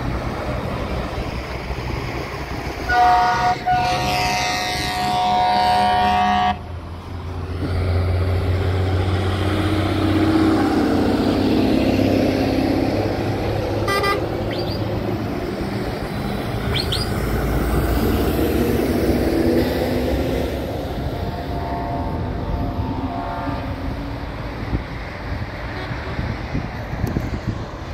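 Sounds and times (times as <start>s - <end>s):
heavy truck engines passing: 0.0s - 27.9s
truck horns: 2.8s - 6.8s, 12.3s - 15.0s, 19.5s - 24.4s, 25.6s - 26.4s.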